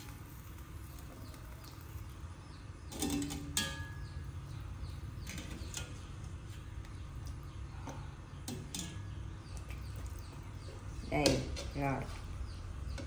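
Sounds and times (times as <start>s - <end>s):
wire skimmer clinking on steel pot: 2.9s - 4.3s, 8.4s - 9.2s.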